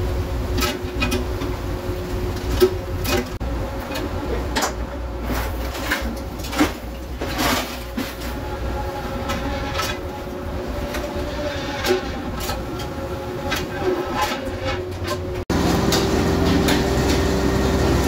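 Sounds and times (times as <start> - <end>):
boat engine droning: 8.0 - 18.0.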